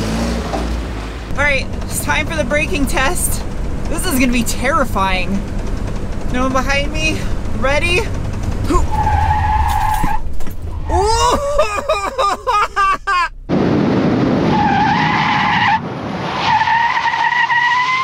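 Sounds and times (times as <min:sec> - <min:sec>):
loud road noise: 0:00.0 - 0:18.0
tyres squealing: 0:07.3 - 0:13.2
shrieking laughter: 0:10.9 - 0:13.4.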